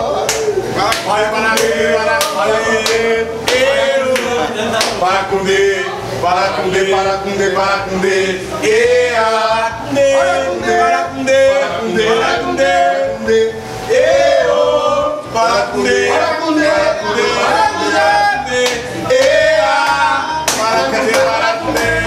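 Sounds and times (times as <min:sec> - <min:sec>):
men singing unaccompanied: 0:00.0 - 0:22.0
hand claps: 0:00.2 - 0:05.0, 0:18.6 - 0:22.0.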